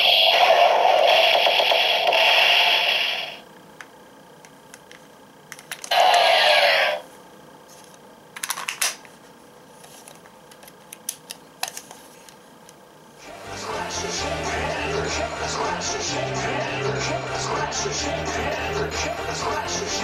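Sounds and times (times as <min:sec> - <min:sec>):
toy electronic sound effects: 0:00.0 - 0:03.4, 0:05.9 - 0:07.0.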